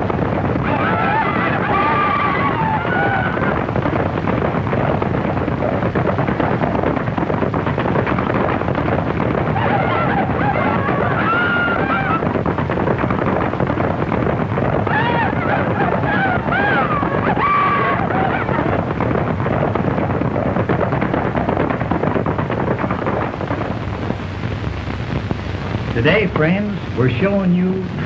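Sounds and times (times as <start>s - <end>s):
film track noise: 0.0s - 28.0s
men yelling: 0.6s - 3.6s.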